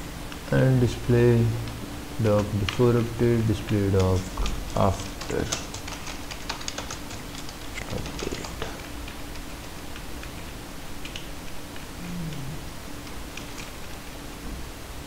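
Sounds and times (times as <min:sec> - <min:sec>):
typing on computer keyboard: 0:03.6 - 0:11.8, 0:13.0 - 0:14.0.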